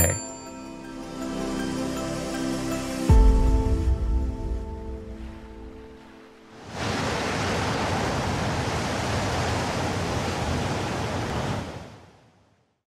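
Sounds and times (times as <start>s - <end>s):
ocean surf breaking: 5.1s - 12.0s.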